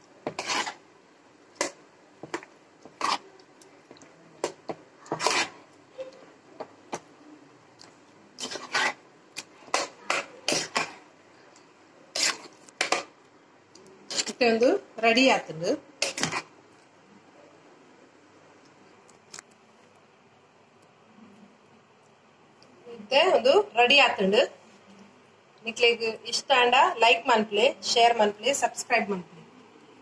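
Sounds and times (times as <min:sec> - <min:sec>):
metal spoon scraping metal bowl: 0:00.3 - 0:00.8, 0:02.9 - 0:03.3, 0:05.0 - 0:05.6, 0:08.4 - 0:09.0, 0:09.7 - 0:11.0, 0:12.2 - 0:13.1, 0:14.1 - 0:14.4, 0:16.0 - 0:16.4.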